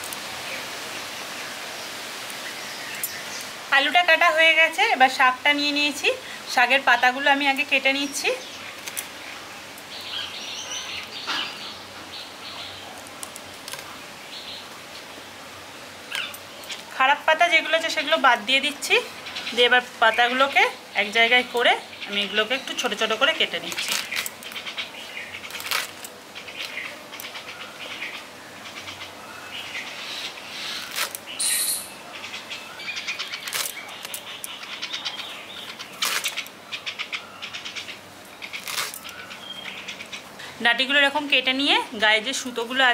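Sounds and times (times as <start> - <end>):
leaves and stems rustling: 0.0 - 42.9
birds chirping: 5.9 - 42.9
leaves crackling as cut: 8.6 - 10.4, 12.6 - 14.0, 22.5 - 28.2, 30.0 - 32.4, 33.0 - 37.2, 37.8 - 40.2
stem snapping: 25.5 - 27.3, 30.8 - 31.2, 33.4 - 34.2, 36.0 - 36.5, 38.5 - 39.2.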